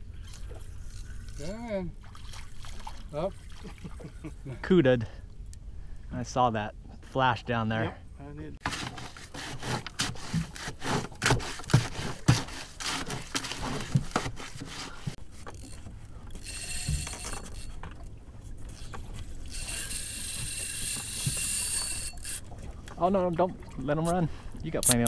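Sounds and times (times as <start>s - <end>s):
stick scraping metal bucket: 8.6s - 15.2s
fishing reel drag buzzing: 16.4s - 17.8s, 19.5s - 22.5s.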